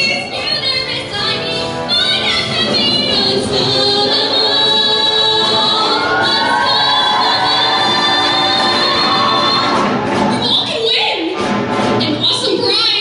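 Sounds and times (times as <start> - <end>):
choir singing in harmony: 3.0 - 10.2.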